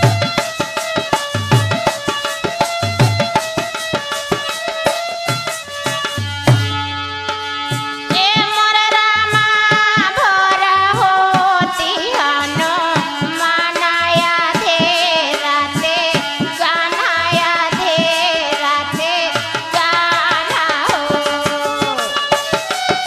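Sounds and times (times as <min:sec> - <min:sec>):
dholak drum strokes: 0:00.0 - 0:23.0
woman singing folk song: 0:08.1 - 0:22.2.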